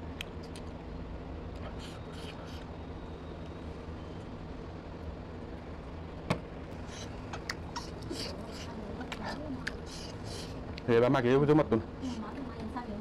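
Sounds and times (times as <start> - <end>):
low background hum: 0.0 - 13.0
chewing clicks and smacks: 9.1 - 9.9.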